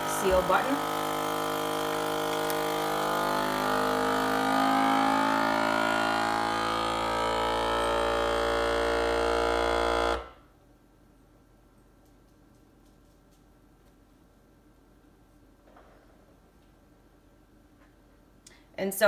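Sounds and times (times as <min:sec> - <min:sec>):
vacuum sealer pump humming: 0:00.0 - 0:10.4.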